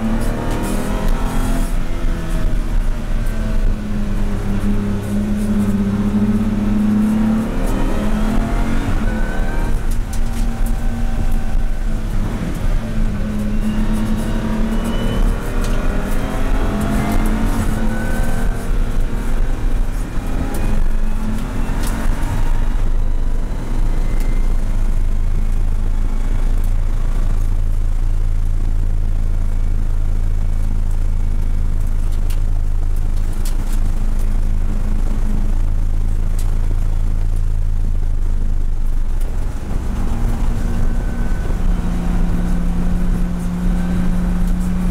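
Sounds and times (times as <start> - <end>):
race car engine accelerating: 0.0 - 27.6, 38.8 - 44.9.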